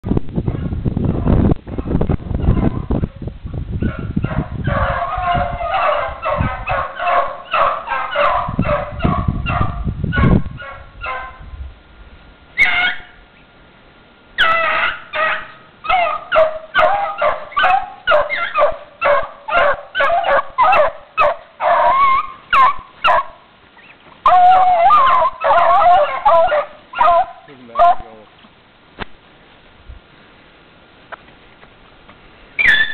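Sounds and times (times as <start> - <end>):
hounds baying: 3.8 - 11.4, 12.6 - 13.2, 14.4 - 23.5, 24.2 - 28.2, 32.6 - 32.9.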